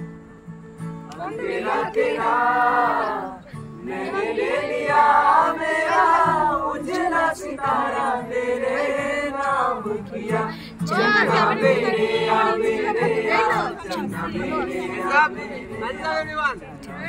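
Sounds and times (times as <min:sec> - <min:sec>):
several voices singing together: 0:01.1 - 0:17.0.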